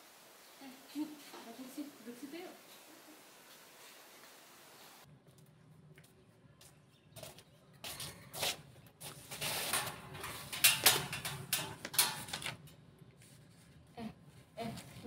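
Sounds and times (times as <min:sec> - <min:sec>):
clothing and paper rustling: 0:07.9 - 0:15.0.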